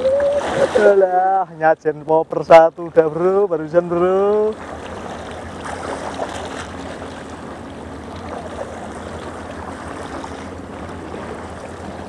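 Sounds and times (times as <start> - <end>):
steady low hum: 0.0 - 12.0
waves lapping against rocks: 0.3 - 1.5, 4.4 - 12.0.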